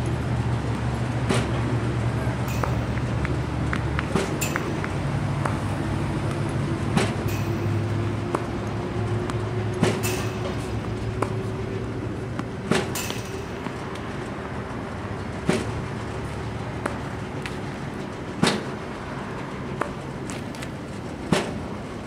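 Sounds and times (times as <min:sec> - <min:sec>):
ball machine motor hum: 0:00.0 - 0:22.0
racket striking ball: 0:01.2 - 0:01.7, 0:02.4 - 0:14.2, 0:15.4 - 0:15.8, 0:16.8 - 0:18.9, 0:19.7 - 0:21.7.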